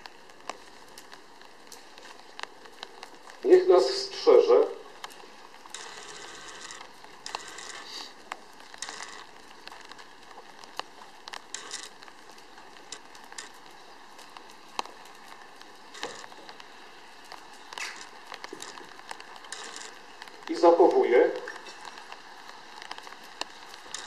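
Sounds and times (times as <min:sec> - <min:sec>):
crackling and rustling: 0:00.0 - 0:24.0
steady hiss: 0:00.0 - 0:24.0
sharp clicks: 0:05.0 - 0:15.1, 0:17.3 - 0:24.0.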